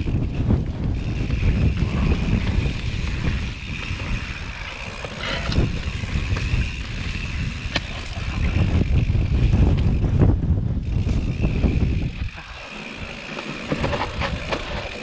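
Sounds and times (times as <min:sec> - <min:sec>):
wind buffeting microphone: 0:00.0 - 0:15.0
tyres rumbling over dirt: 0:10.9 - 0:15.0
bike knocking over bumps: 0:13.2 - 0:15.0.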